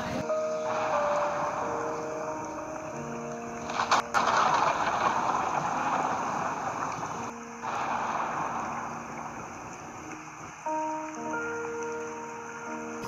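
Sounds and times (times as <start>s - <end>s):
faint background music: 0.0s - 13.0s.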